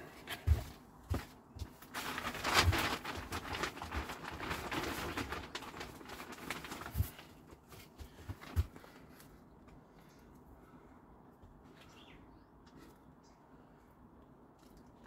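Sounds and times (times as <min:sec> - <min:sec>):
compost rustling into pot: 0:01.8 - 0:07.8.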